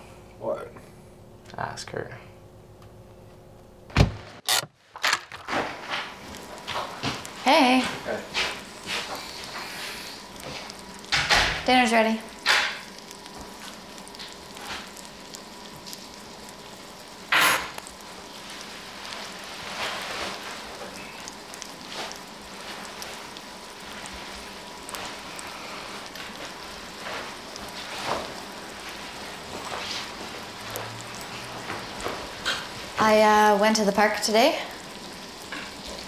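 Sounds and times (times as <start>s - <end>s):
door shutting: 3.9s - 5.8s
meat sizzling in a pan: 5.5s - 36.0s.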